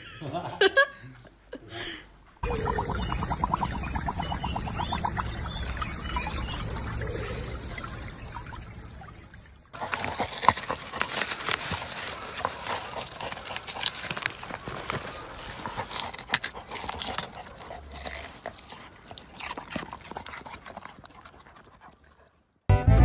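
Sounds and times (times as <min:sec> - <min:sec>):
water splashing and trickling: 0:02.4 - 0:22.4
dog digging in dry soil: 0:09.8 - 0:22.2.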